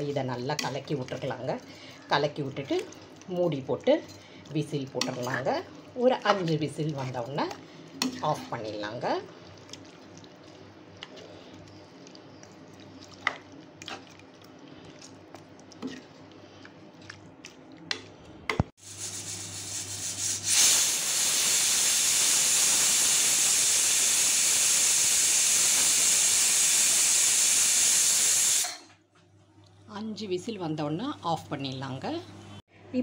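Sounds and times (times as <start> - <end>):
ladle stirring gravy: 0.0 - 18.2
pressure cooker steam hissing: 18.8 - 28.8.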